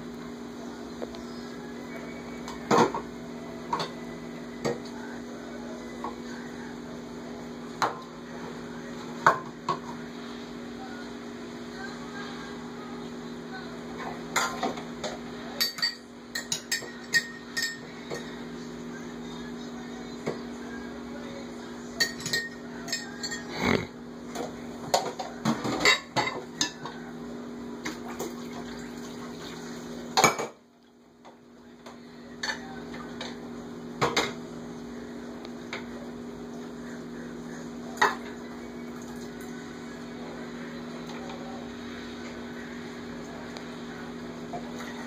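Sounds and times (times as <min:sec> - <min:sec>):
dishes clinking in sink: 0:15.6 - 0:18.3, 0:22.0 - 0:23.5, 0:30.1 - 0:30.6.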